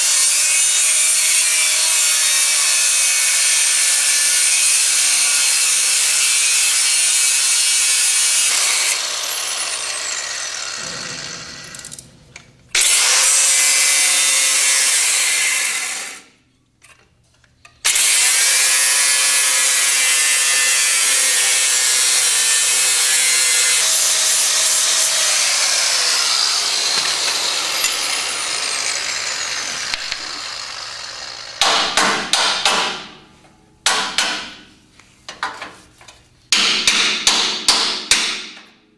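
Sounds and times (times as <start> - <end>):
angle grinder grinding steel: 0.0 - 12.1, 12.8 - 16.3, 17.9 - 31.6.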